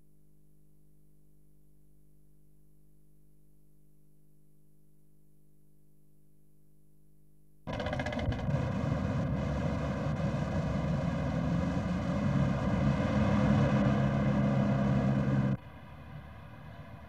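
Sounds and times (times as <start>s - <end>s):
street traffic: 7.7s - 17.0s
vehicle engine running: 7.7s - 17.0s.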